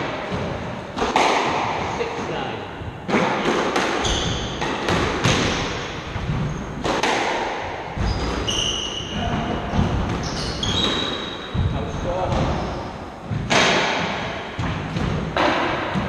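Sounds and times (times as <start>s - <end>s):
squash ball hitting rackets and walls: 0.0s - 16.0s
shoes squeaking on wooden floor: 4.0s - 4.6s, 8.0s - 12.9s.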